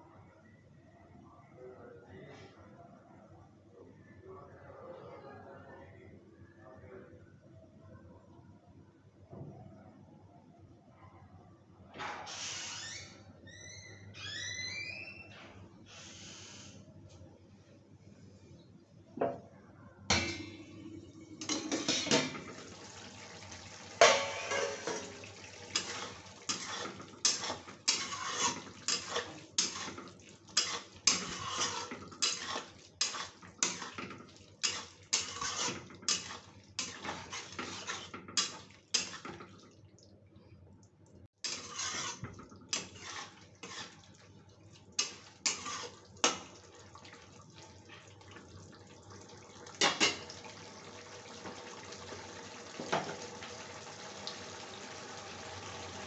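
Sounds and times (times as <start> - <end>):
metal spatula scraping iron pan: 24.0 - 39.4, 41.4 - 44.0, 45.0 - 46.5.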